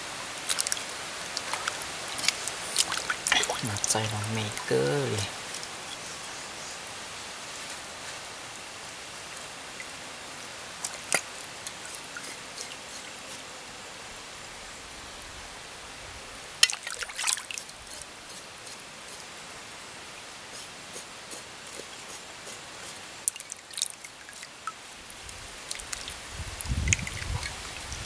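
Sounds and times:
steady outdoor hiss: 0.0 - 28.0
crackles and snaps: 0.4 - 3.8.

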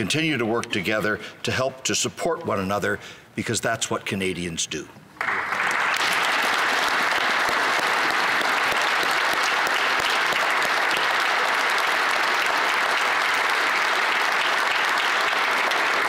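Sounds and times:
large group applauding: 5.2 - 16.0.

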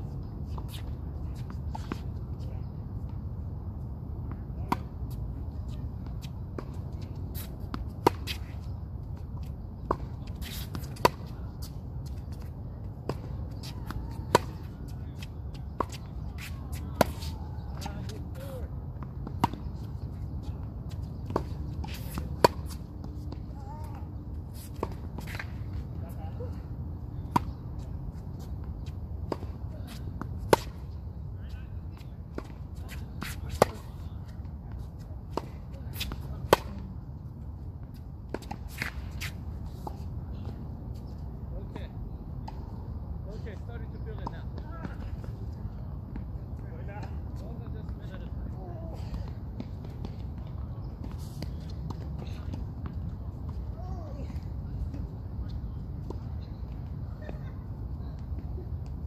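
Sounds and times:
tennis ball bouncing on court: 6.0 - 18.4, 19.0 - 19.9, 20.9 - 24.1, 27.2 - 27.6, 32.3 - 34.0, 34.7 - 37.0, 37.9 - 40.6.

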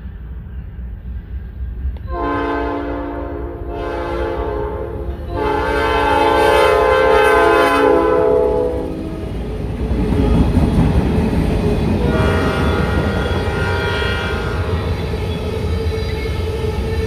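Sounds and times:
low rumble of freight train: 0.0 - 17.0
locomotive air horn blasts: 2.1 - 9.2, 12.0 - 14.9.

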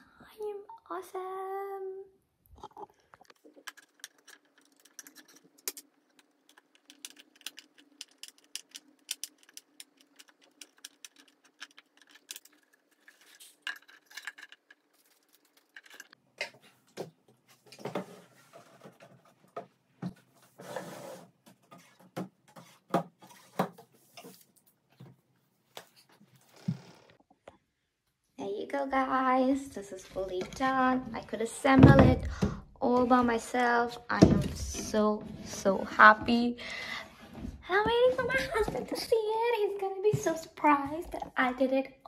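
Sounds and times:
furniture parts clicking and clinking: 3.3 - 16.6
panels knocking and rustling: 3.4 - 25.2, 30.1 - 36.5.

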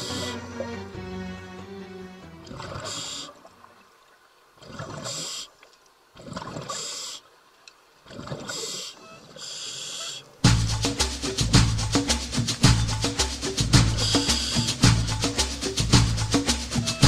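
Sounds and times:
hissing air and bubbles: 2.4 - 3.5, 4.6 - 5.6, 8.1 - 17.0
diver breathing through regulator: 2.5 - 3.4, 8.4 - 10.3
loud music with percussion: 10.4 - 17.0.

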